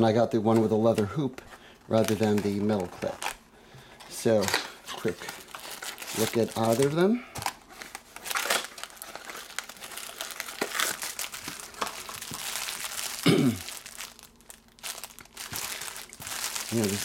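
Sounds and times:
plastic bags crinkling: 0:01.9 - 0:03.4, 0:04.0 - 0:17.0
cardboard packaging clicks and scrapes: 0:04.0 - 0:14.1, 0:14.9 - 0:17.0.

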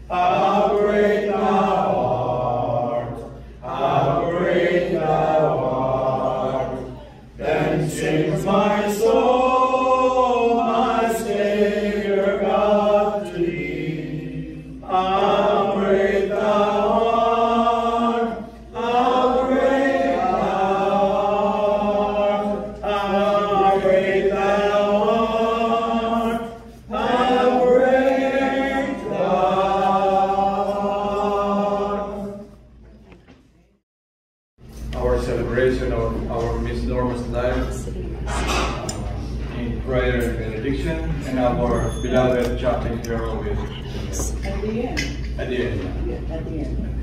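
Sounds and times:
two men singing unaccompanied: 0:00.0 - 0:32.1.

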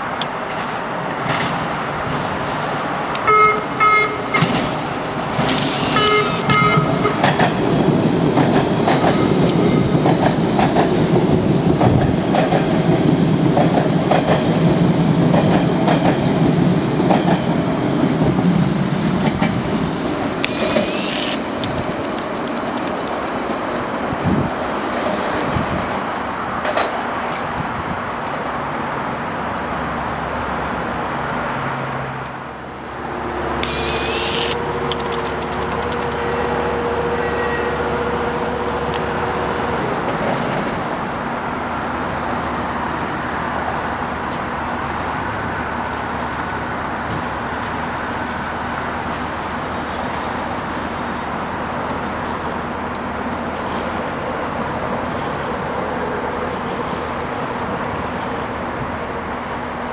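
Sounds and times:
train wheels and motors rumbling: 0:04.1 - 0:29.8, 0:32.2 - 0:59.9
brakes squealing: 0:04.3 - 0:08.2, 0:20.4 - 0:22.8, 0:32.6 - 0:37.8, 0:41.4 - 0:52.7.

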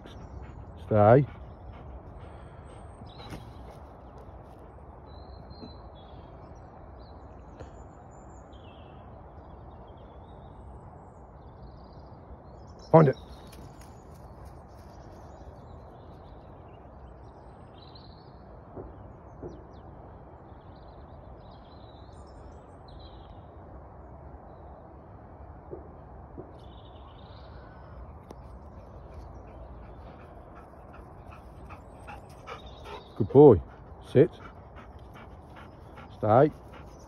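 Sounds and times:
birds calling: 0:00.0 - 0:06.6, 0:26.6 - 0:37.0.

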